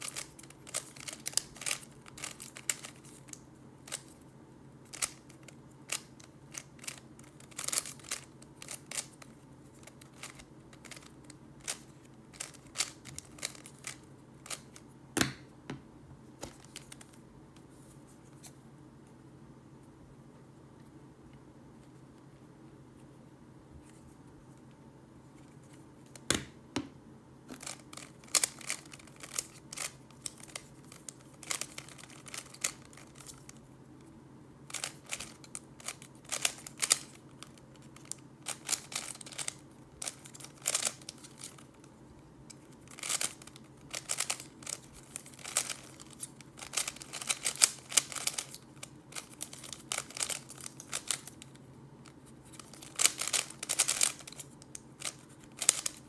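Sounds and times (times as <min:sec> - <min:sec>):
puzzle cube plastic clicks: 0:00.0 - 0:04.2, 0:04.9 - 0:14.8, 0:27.6 - 0:33.6, 0:34.7 - 0:41.9, 0:42.5 - 0:51.6, 0:52.5 - 0:56.0
faint low hum: 0:00.0 - 0:56.0.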